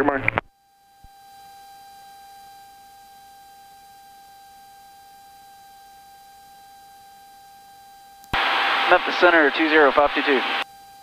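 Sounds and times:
high-pitched electrical whine: 0:00.5 - 0:11.0
radio hiss: 0:08.4 - 0:10.6.

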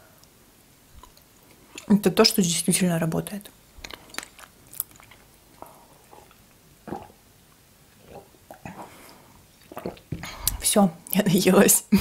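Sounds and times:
chewing and swallowing: 0:01.0 - 0:01.9, 0:03.8 - 0:10.6
sipping from a mug: 0:08.0 - 0:10.7.

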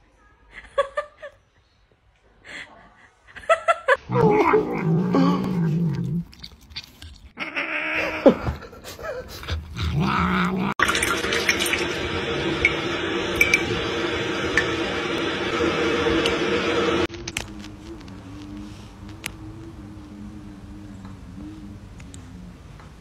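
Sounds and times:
tap water splashing into sink: 0:10.8 - 0:12.0.

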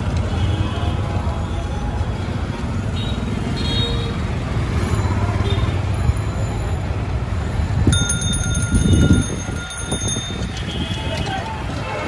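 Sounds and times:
traffic engines rumbling: 0:00.0 - 0:12.0
bell ringing rapidly: 0:07.9 - 0:10.5.

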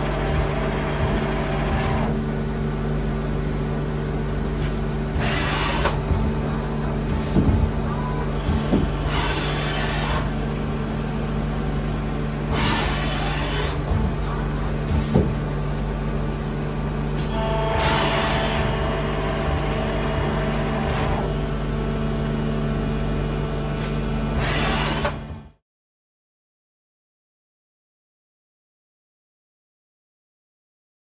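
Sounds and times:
lathe machine hum: 0:00.0 - 0:25.1
steady machine whine: 0:00.0 - 0:25.6.

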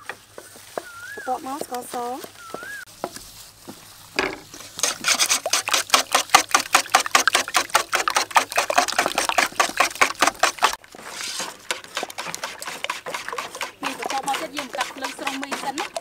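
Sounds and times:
whisk beating eggs in metal bowl: 0:04.6 - 0:16.0.

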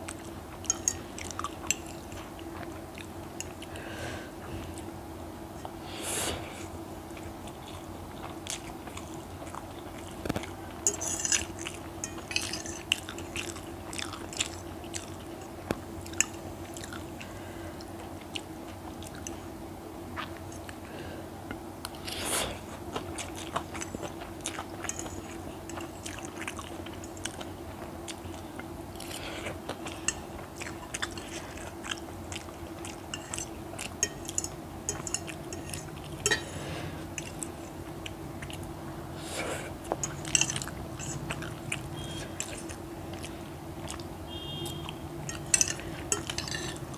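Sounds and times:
chewing and mouth smacks: 0:00.0 - 0:03.8, 0:07.1 - 0:20.8, 0:22.7 - 0:38.8, 0:39.8 - 0:46.9
metal fork clicking on plate: 0:00.7 - 0:01.0, 0:10.8 - 0:12.8, 0:34.0 - 0:36.5, 0:45.2 - 0:46.9.

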